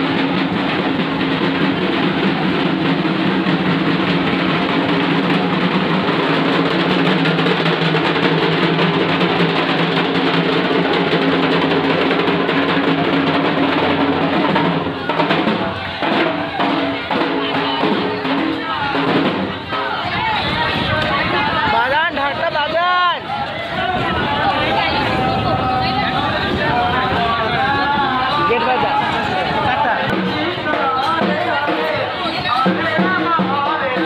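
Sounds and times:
barrel drums rolling: 0.0s - 34.0s.

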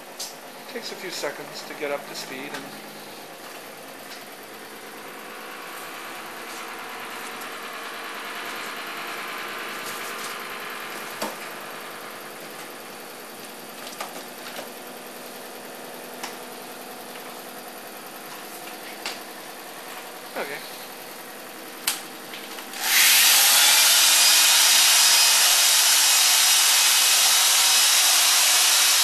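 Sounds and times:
pulse motor humming: 22.7s - 29.0s.

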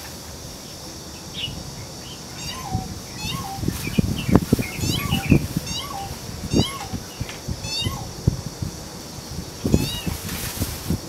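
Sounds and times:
bird mewing call: 1.2s - 8.3s, 9.7s - 10.2s.

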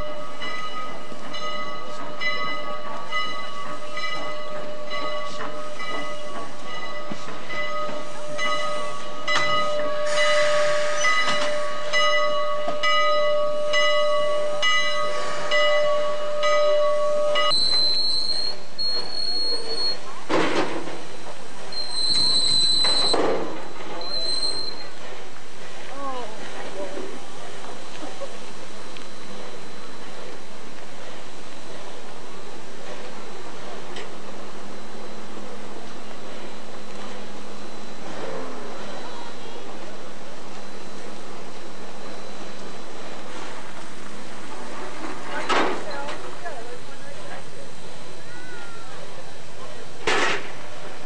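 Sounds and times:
steam locomotive machinery whine: 0.0s - 51.0s
short rushes of steam hiss: 10.0s - 11.9s, 15.0s - 15.6s.

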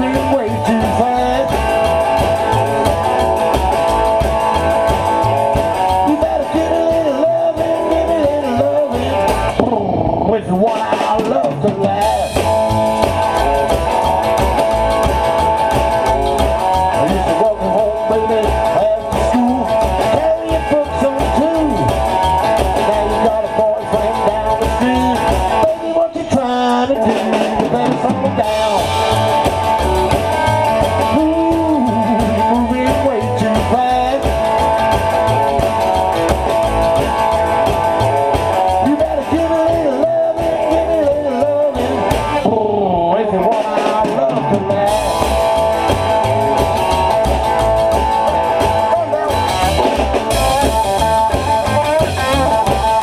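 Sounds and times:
blues rock band playing: 0.0s - 53.0s
harmonica wavering notes: 11.9s - 53.0s.

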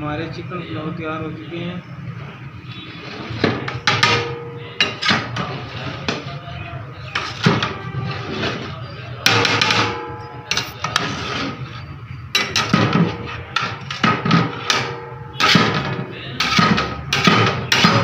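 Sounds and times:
metal ladle clanking on a pot: 3.6s - 6.2s, 9.2s - 11.1s, 12.3s - 18.0s.

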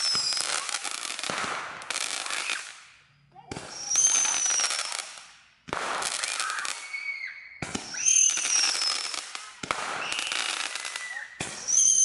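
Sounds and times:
fireworks crackling pops: 0.0s - 12.0s
fireworks whistles gliding down: 0.0s - 12.0s.

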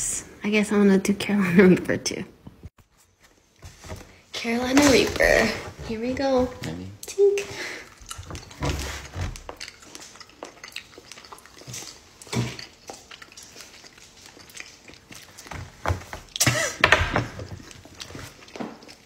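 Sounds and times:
people chewing jelly beans: 7.0s - 19.0s.

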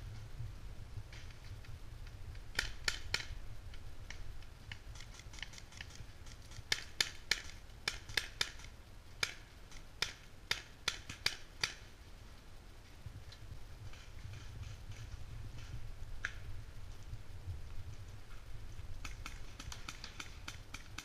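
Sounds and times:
steady low rumble: 0.0s - 21.0s
paintball markers firing: 4.8s - 11.9s, 19.0s - 21.0s.

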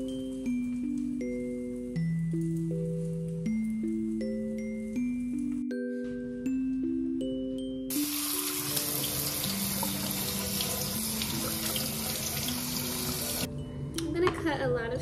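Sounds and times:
tap water rushing into sink: 7.9s - 13.5s.

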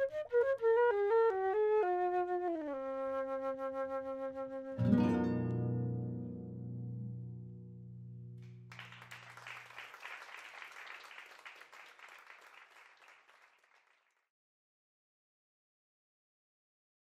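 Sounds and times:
audience applause: 8.4s - 14.2s.

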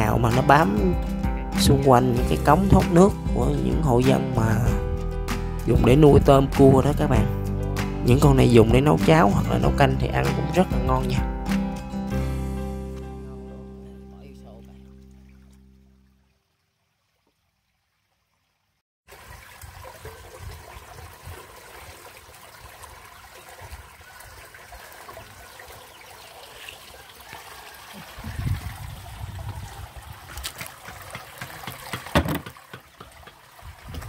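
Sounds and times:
water trickling and splashing: 14.3s - 34.0s
sharp knocks: 30.5s - 33.4s.

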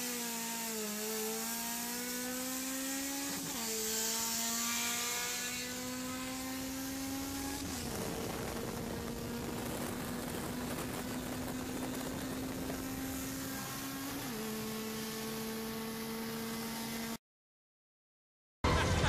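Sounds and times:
car engine running: 6.8s - 14.0s.

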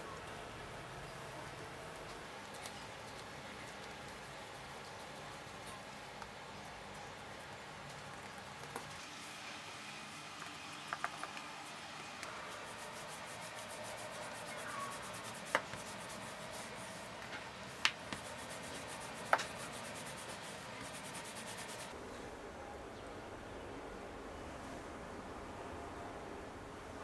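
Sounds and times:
rolling pin rubbing on dough: 12.5s - 21.9s.

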